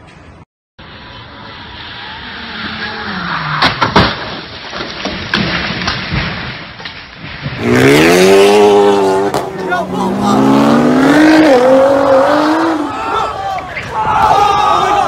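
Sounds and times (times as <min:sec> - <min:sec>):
car engine speeding: 0:00.8 - 0:03.9, 0:07.6 - 0:13.0
car crash bangs: 0:02.6 - 0:08.1
debris knocks: 0:03.6 - 0:07.8.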